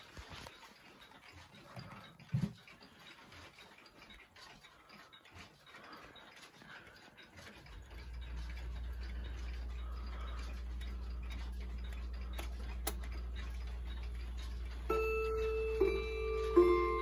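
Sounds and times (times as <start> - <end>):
clock hand clicks: 0.0 - 17.0
wall clock ticking: 0.0 - 17.0
low hum: 7.8 - 17.0
hammer striking chime rods: 8.1 - 17.0.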